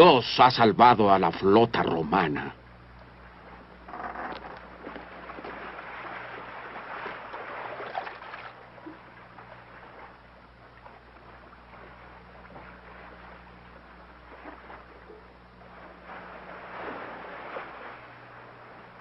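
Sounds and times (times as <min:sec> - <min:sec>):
low steady hum: 0:00.0 - 0:19.0
sea wash and wind: 0:00.0 - 0:19.0
faint ticks: 0:02.9 - 0:03.2, 0:03.9 - 0:05.0.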